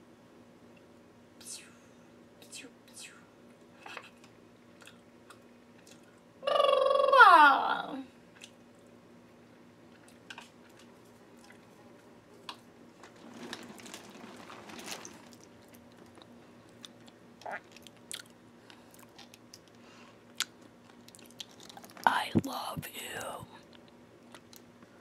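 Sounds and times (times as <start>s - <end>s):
person chewing food: 4.0s - 6.2s, 8.3s - 8.9s, 9.9s - 11.7s, 15.0s - 22.0s.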